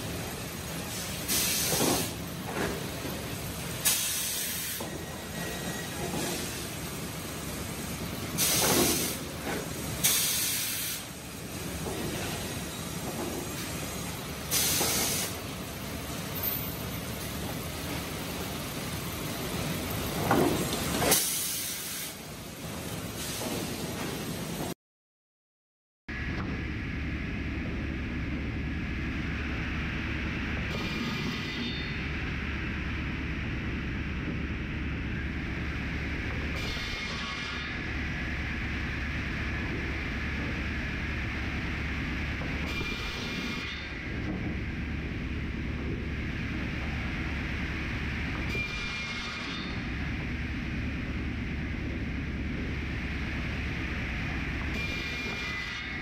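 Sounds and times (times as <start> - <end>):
hiss of wood chips: 0.9 - 2.2, 8.4 - 9.3, 14.5 - 15.4.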